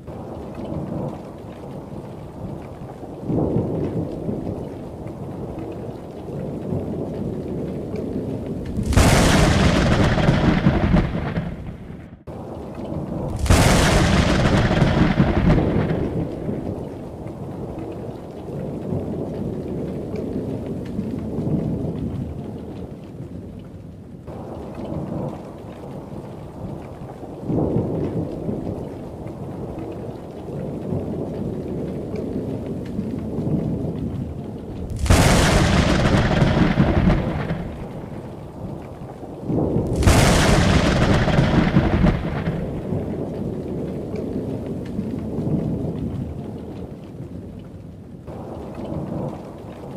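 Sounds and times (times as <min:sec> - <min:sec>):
low thunder rumbling: 0:00.0 - 0:23.5, 0:24.2 - 0:49.9
steady rain: 0:00.0 - 0:49.9
thunder crashes: 0:08.7 - 0:12.2, 0:13.3 - 0:16.7, 0:34.8 - 0:38.2, 0:39.5 - 0:43.2.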